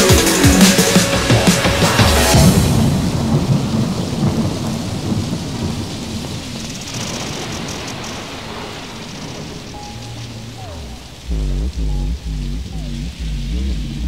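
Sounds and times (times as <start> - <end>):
steady rain-like hiss: 0.0 - 14.0
low rumble: 9.0 - 14.0.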